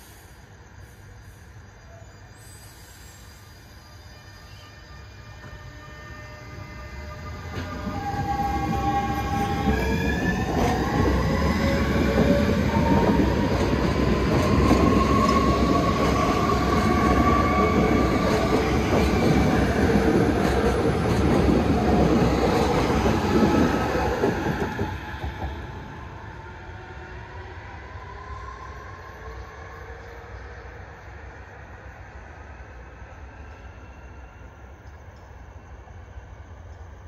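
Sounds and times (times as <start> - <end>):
wheels rumbling on rail: 6.3 - 27.4.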